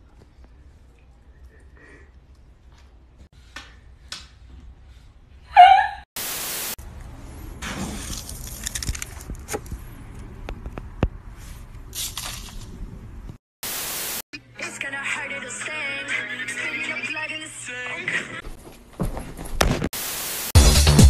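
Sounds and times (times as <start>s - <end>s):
tv static burst: 6.2s - 6.8s, 13.6s - 14.2s, 20.0s - 20.6s.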